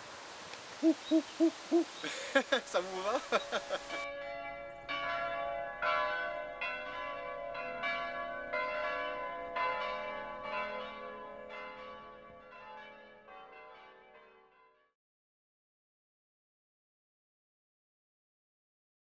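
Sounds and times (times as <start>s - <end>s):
bells ringing: 2.1s - 14.8s.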